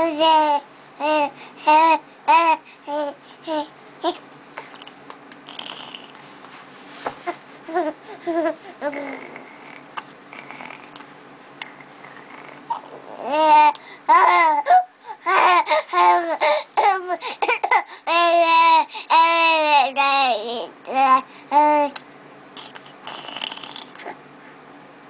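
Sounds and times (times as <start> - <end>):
baby babbling: 7.2 - 9.8, 12.2 - 17.2.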